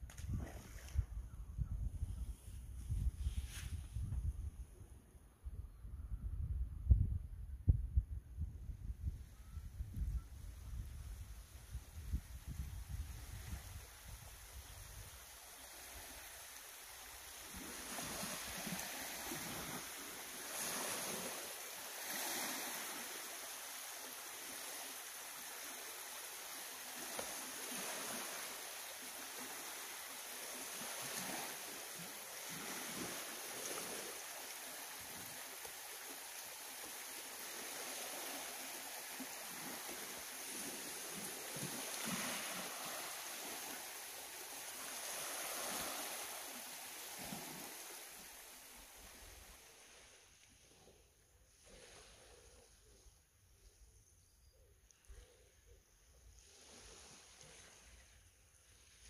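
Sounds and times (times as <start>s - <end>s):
waves lapping on shingle beach: 11.4s - 53.0s, 56.3s - 59.0s.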